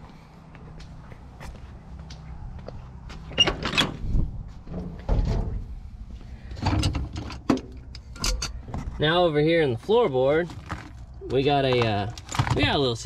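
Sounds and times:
metal door clunks and knocks: 4.7s - 5.7s.

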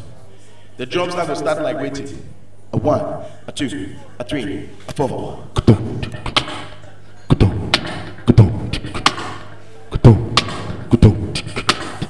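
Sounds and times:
man beatboxing a drum beat: 5.6s - 6.7s, 7.3s - 12.0s.

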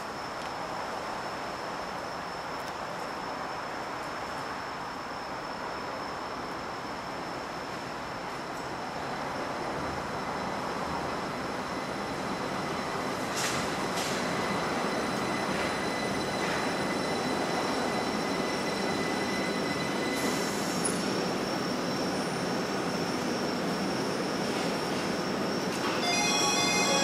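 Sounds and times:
high-pitched train whine: 0.0s - 27.0s
train rushing running noise: 8.0s - 27.0s.

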